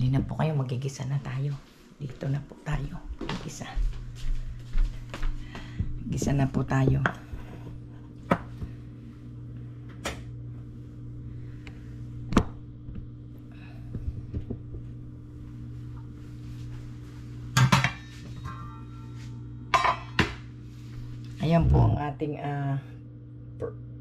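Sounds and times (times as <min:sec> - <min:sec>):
low steady hum: 0:00.0 - 0:24.0
pots and utensils clattering: 0:17.6 - 0:18.8
metallic ring: 0:17.6 - 0:20.0.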